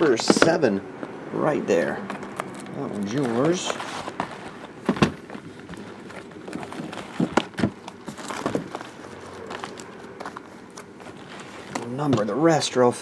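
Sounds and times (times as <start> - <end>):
plastic wrap crinkling: 2.1 - 12.0
boxes knocking: 4.1 - 8.8.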